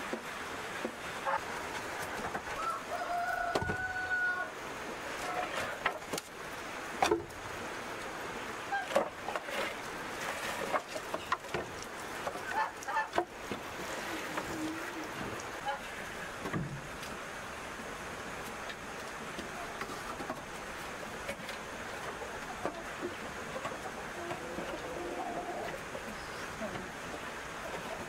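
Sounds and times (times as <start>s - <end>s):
chickens clucking: 1.2s - 4.4s, 12.2s - 16.2s, 19.4s - 28.0s
rooster crowing: 2.6s - 4.6s.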